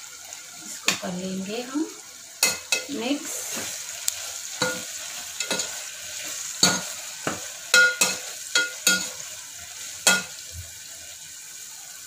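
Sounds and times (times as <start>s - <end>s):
masala sizzling in oil: 0.0s - 12.0s
metal ladle clanking against pot: 7.7s - 9.1s.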